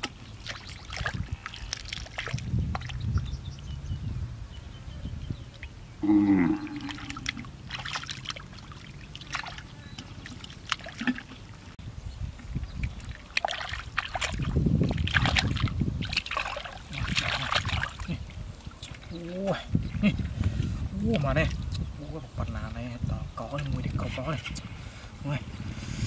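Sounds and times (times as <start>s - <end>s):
hands splashing in shallow water: 0.4s - 3.1s, 6.8s - 11.5s, 12.8s - 19.1s.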